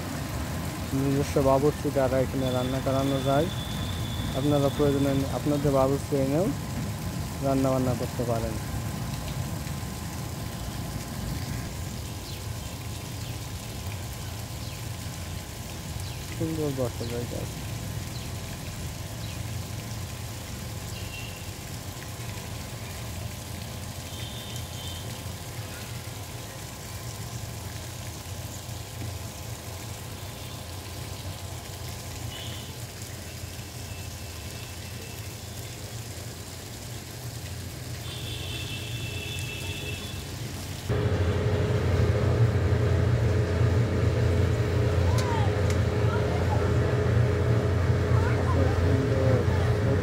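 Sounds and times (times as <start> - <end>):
steady hum: 40.9 - 50.0
steady low rumble: 40.9 - 50.0.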